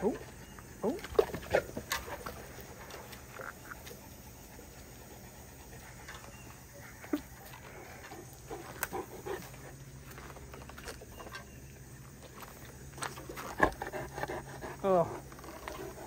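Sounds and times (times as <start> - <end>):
dog sniffing and breathing: 2.4 - 6.6, 13.4 - 16.0
paws scuffing dirt: 5.7 - 14.5.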